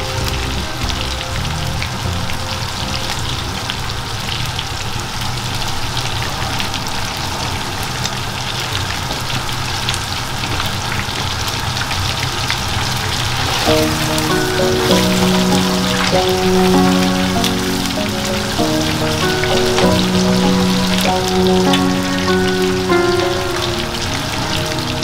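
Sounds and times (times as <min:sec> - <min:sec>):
chicken deep-frying in oil: 0:00.0 - 0:15.3.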